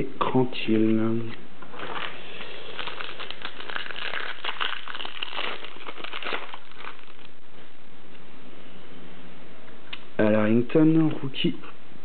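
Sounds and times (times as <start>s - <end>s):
foil wrapper crinkling: 1.7s - 7.4s.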